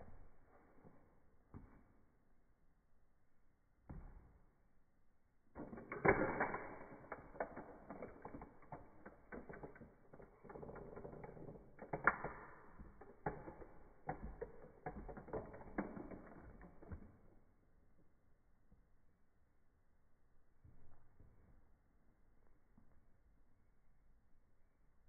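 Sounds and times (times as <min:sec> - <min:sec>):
toy car cracking under shoe: 0:05.6 - 0:17.4.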